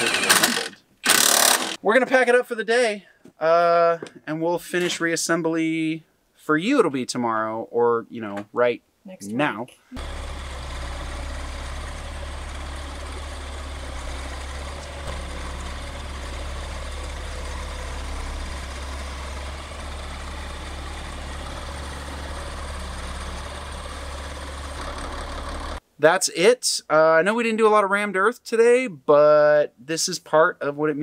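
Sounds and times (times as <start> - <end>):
bulldozer diesel engine running: 10.0 - 25.8.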